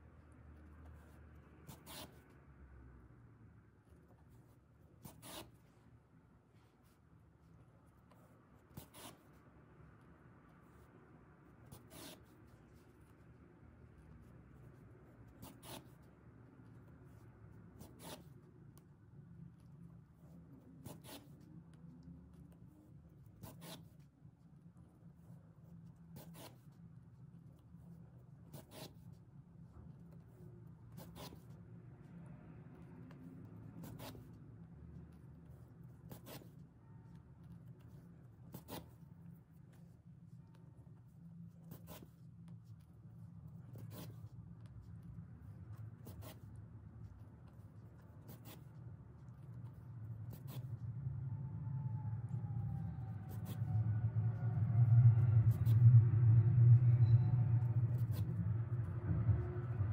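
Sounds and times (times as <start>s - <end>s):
low steady hum: 0.0s - 59.9s
low hum: 49.8s - 59.9s.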